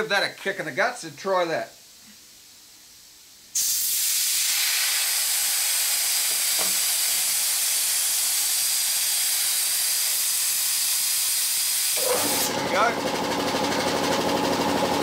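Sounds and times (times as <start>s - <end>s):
compressed air hissing: 3.5s - 12.5s.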